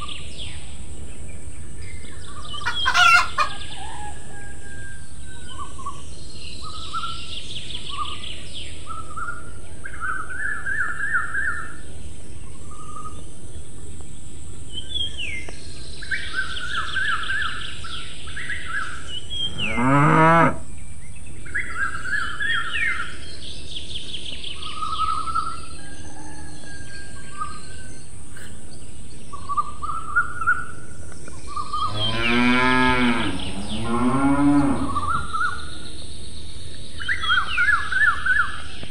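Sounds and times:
small birds chirping: 0.0 - 4.5, 5.1 - 38.9
cow mooing: 19.5 - 20.6, 31.9 - 35.3.

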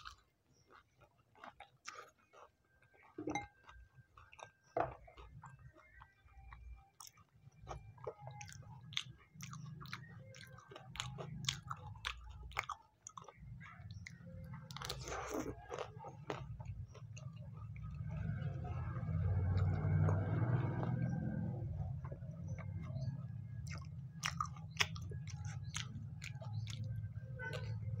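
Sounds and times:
crisp crunching while chewing: 0.0 - 4.5, 5.1 - 17.9, 23.6 - 27.8.

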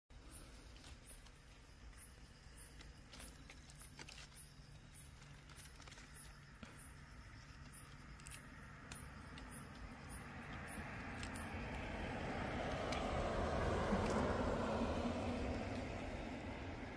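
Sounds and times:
high-pitched insect chirps: 0.3 - 13.2
grass leaves rustling: 0.4 - 16.9.

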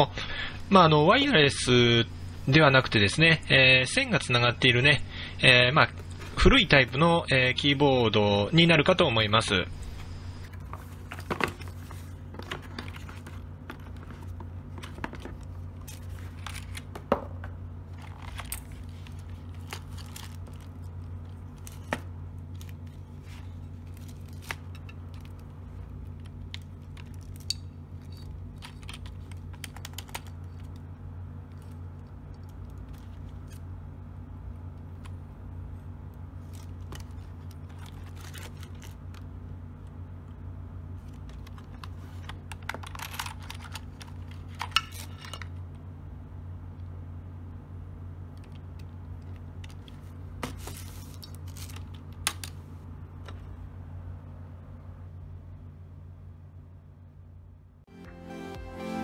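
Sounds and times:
steady low hum: 0.0 - 59.0
plastic bag crinkling: 17.9 - 30.8, 36.4 - 39.3.

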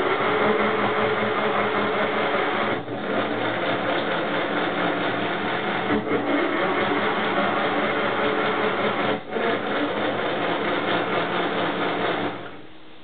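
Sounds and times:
toy washing machine whirring: 0.0 - 12.6.

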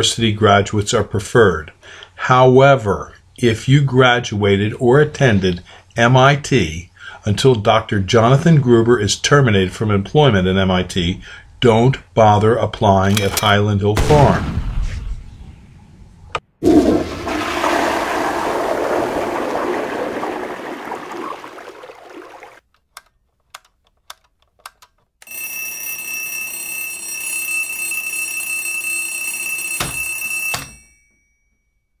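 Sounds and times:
rushing noise: 14.5 - 21.6.

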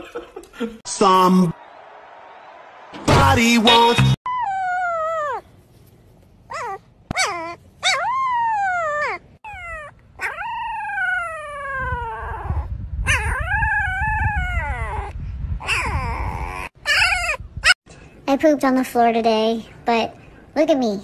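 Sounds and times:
dog whining: 4.3 - 5.5, 6.5 - 17.8.

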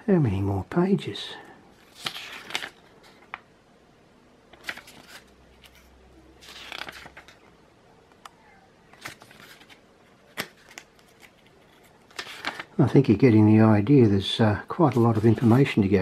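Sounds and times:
booklet pages turning: 1.8 - 3.5, 4.5 - 7.5, 8.1 - 12.8, 14.7 - 16.0.

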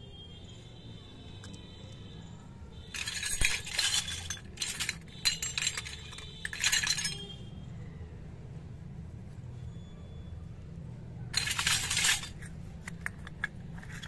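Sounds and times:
plastic toy pieces rustling and clinking: 2.9 - 7.4, 11.3 - 14.0.

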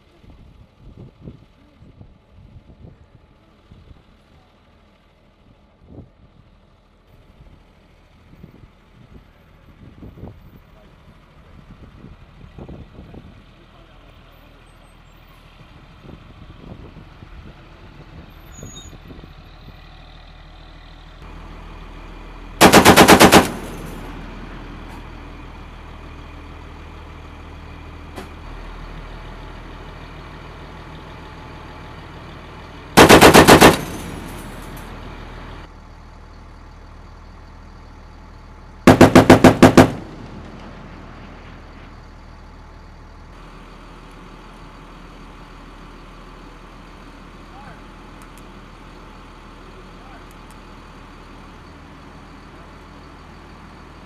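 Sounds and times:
machine gun bursts: 22.6 - 24.0, 33.0 - 34.5, 38.9 - 40.2.

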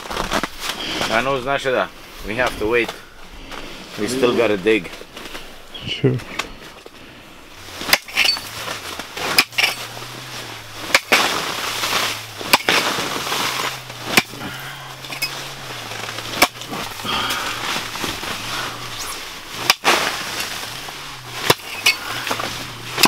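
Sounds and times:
broken ice scraping and crunching: 0.0 - 5.5, 7.6 - 23.0
ice being chopped: 7.8 - 8.5, 9.2 - 9.8, 10.9 - 15.4, 16.0 - 18.0, 19.6 - 20.8, 21.4 - 23.0.

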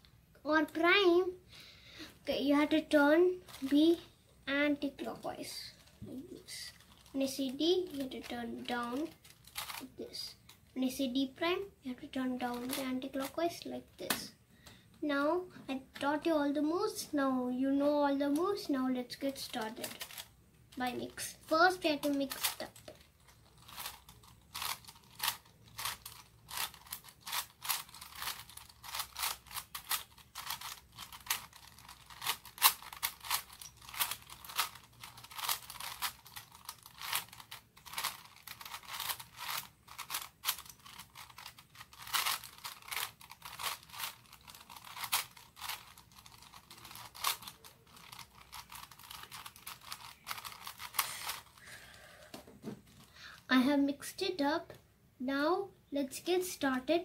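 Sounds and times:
plastic puzzle cube clicking: 22.0 - 51.6.

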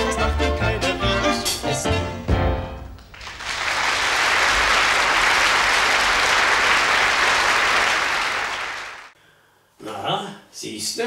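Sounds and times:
audience applauding: 3.0 - 9.2.

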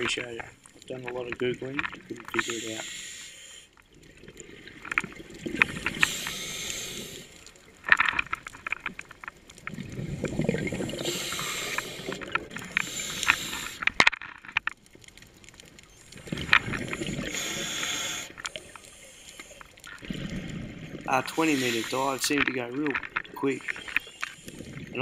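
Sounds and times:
hissing regulator inhalations: 2.3 - 3.8, 5.6 - 7.6, 10.7 - 14.0, 16.0 - 19.8, 21.1 - 22.5, 23.4 - 24.9
bubbling exhalations underwater: 9.7 - 13.7, 20.0 - 22.2.

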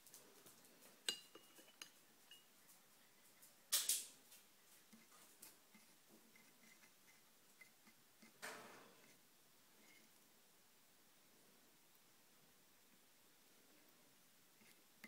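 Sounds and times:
cutlery clinking against a dish: 1.1 - 2.5
cutlery scraping a dish: 1.1 - 2.5.

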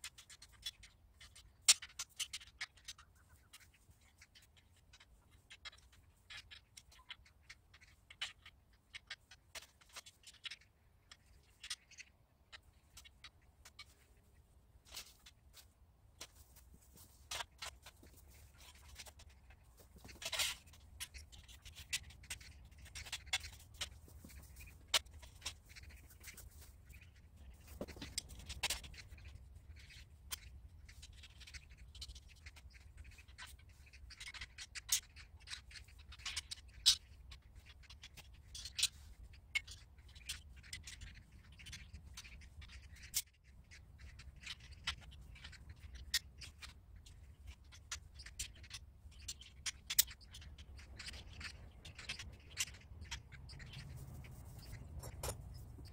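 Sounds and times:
metal pipe parts clicking and scraping: 54.5 - 55.9.

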